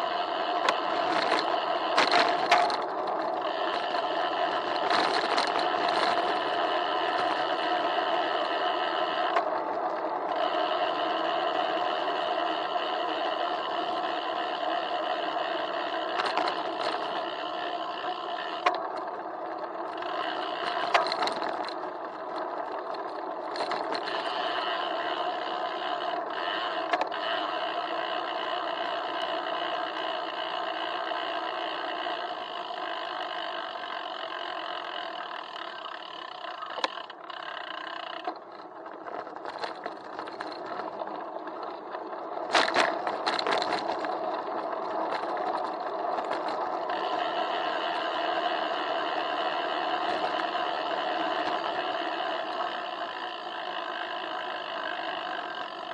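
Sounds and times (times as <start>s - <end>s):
hum of road vibration: 0.0s - 55.9s
bicycle knocks and rattles: 0.6s - 11.3s, 15.6s - 28.5s, 33.8s - 47.8s.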